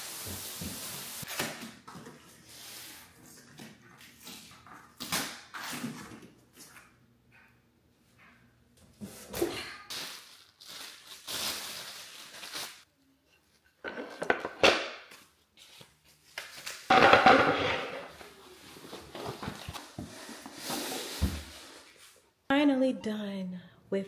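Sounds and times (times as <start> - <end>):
plastic wrapping crinkling: 9.9 - 12.8.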